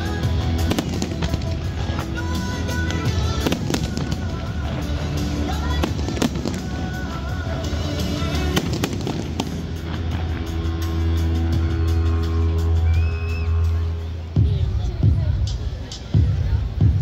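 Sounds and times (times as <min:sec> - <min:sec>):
fireworks bangs and crackling: 0:00.0 - 0:11.9
music with deep bass: 0:00.0 - 0:17.0.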